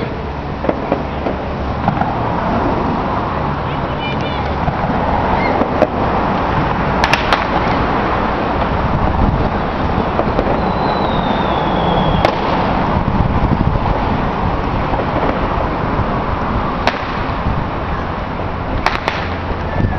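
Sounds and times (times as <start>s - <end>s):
distant fireworks cracking: 0.0s - 19.9s
loud rushing background noise: 0.0s - 19.9s
faint falling whistle: 10.5s - 12.3s.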